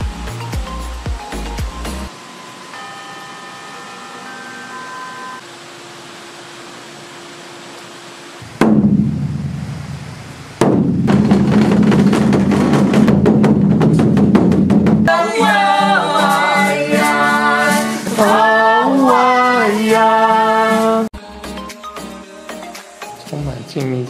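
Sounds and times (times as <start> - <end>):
large drum roll: 8.4 - 15.1
acoustic guitar: 8.6 - 23.3
women singing: 15.1 - 21.1.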